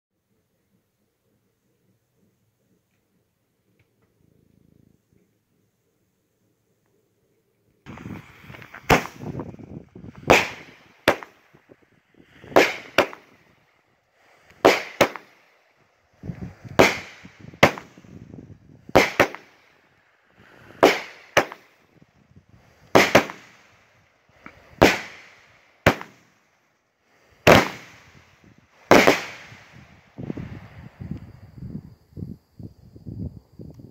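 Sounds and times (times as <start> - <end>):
firework shots launching: 7.9 - 19.8, 20.4 - 22.0, 22.6 - 26.4, 27.4 - 30.6
sharp firework bangs: 7.9 - 19.8, 20.4 - 21.8, 22.9 - 26.4, 27.4 - 30.6.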